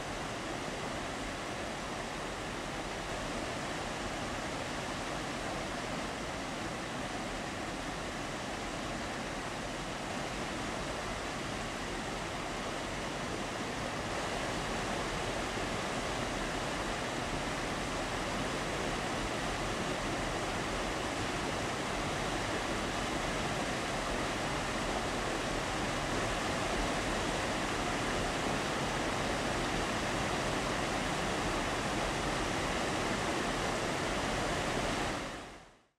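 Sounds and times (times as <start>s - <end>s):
water rushing over rocks: 12.8s - 35.4s.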